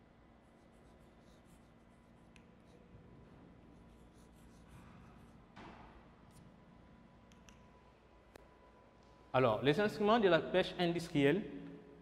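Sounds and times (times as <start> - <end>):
chalk scratching on chalkboard: 0.4 - 3.0, 3.6 - 5.5.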